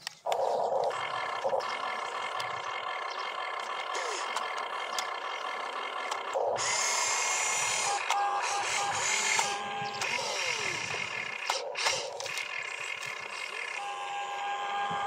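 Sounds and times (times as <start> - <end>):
electric motors whirring: 0.0 - 15.0.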